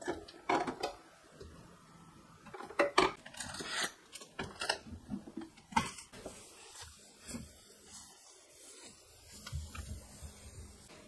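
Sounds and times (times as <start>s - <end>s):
containers clinking on fridge shelves: 0.0s - 1.0s, 2.4s - 6.1s.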